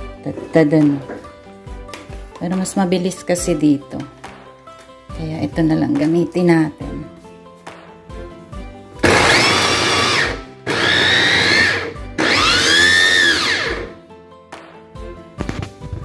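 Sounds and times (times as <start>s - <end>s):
faint background music: 0.0s - 16.0s
electric chopper motor whine: 9.0s - 13.9s.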